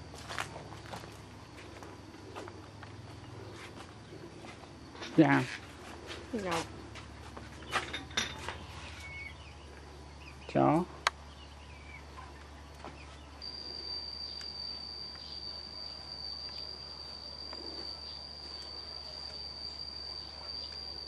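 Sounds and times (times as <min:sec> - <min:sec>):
insect buzzing: 0:13.2 - 0:21.0.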